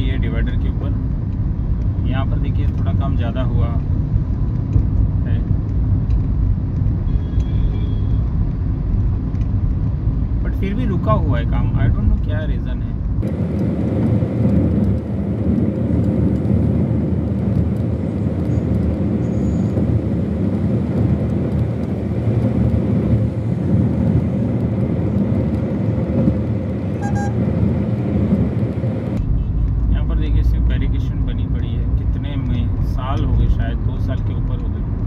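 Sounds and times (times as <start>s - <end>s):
road and engine rumble inside car: 0.0s - 35.0s
brief beep: 7.1s - 8.2s, 27.0s - 27.4s.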